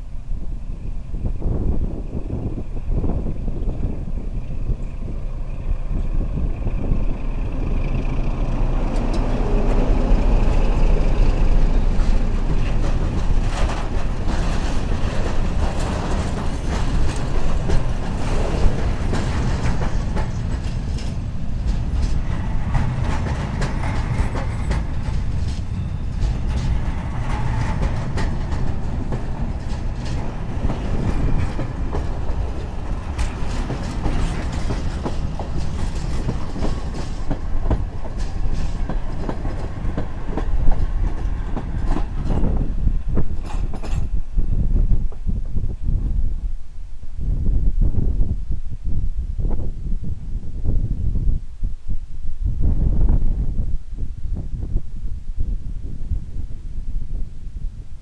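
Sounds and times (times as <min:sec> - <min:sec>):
locomotive engine rumbling: 0:00.0 - 0:46.0
train wheels clattering: 0:04.8 - 0:44.4.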